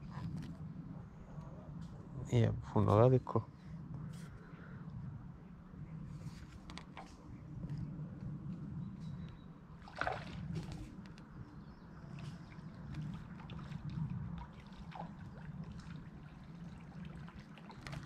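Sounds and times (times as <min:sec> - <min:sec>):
river water trickling: 0:09.1 - 0:18.0.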